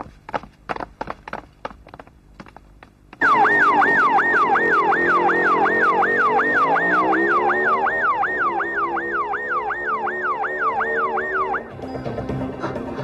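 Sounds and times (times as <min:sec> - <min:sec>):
vehicle engines running: 0:00.0 - 0:13.0
police siren yelping: 0:03.2 - 0:11.9.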